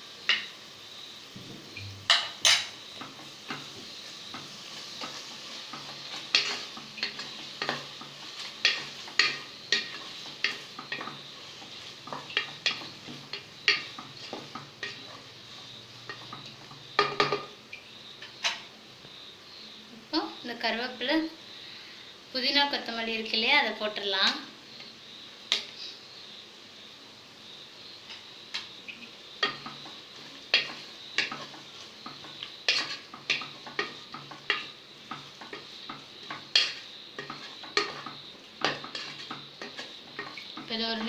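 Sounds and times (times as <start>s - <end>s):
frying sizzle: 0.0s - 41.0s
spoon scraping a pan: 0.2s - 0.6s, 1.4s - 18.8s, 28.0s - 41.0s.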